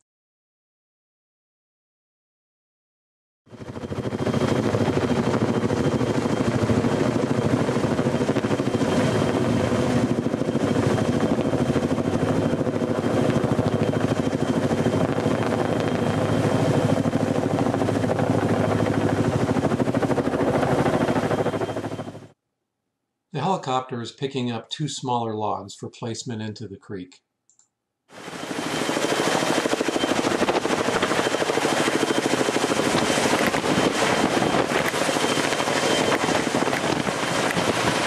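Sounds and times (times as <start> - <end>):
helicopter rotor chop: 3.5 - 22.4, 28.1 - 38.0
high turbine whine: 3.6 - 22.3, 28.2 - 38.0.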